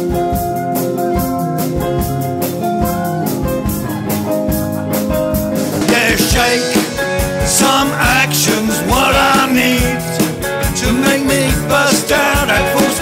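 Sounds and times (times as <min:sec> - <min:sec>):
drum kit steady beat: 0:00.0 - 0:13.0
plucked guitar: 0:00.0 - 0:13.0.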